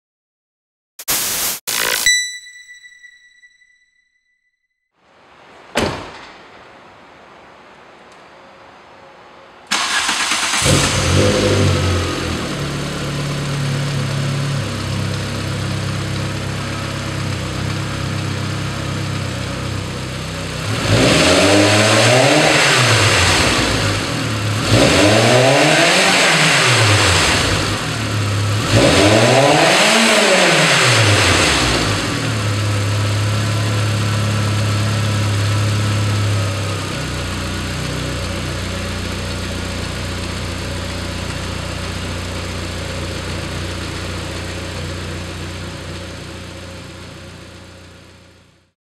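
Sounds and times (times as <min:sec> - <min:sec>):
car engine idling and revving: 0:09.7 - 0:48.6.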